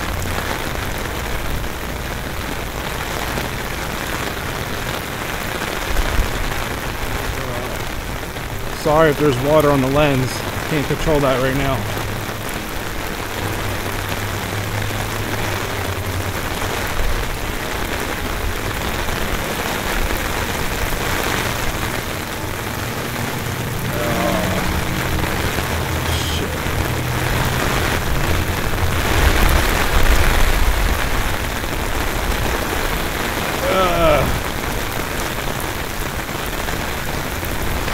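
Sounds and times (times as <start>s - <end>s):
heavy rain falling: 0.0s - 37.9s.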